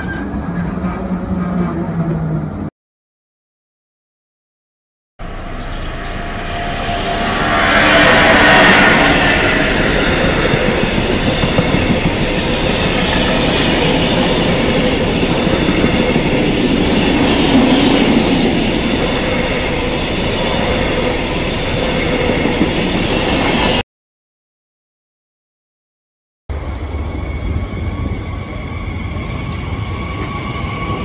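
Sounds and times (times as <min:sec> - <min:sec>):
locomotive passing: 0:05.2 - 0:23.8
train wheels on rail: 0:05.6 - 0:23.8.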